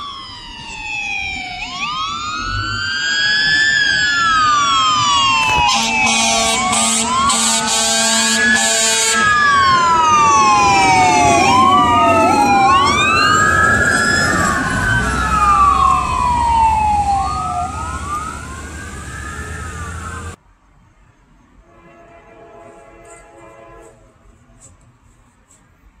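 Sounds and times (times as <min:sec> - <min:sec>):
fire engine sirens wailing: 0:00.0 - 0:20.4.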